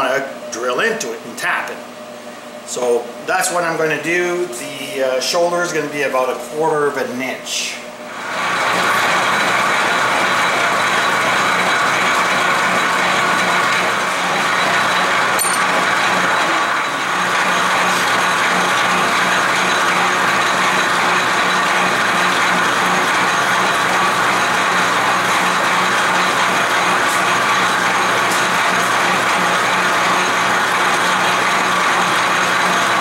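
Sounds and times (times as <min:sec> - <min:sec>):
low machine hum: 0:00.0 - 0:33.0
metal lathe gear clatter: 0:14.6 - 0:16.8.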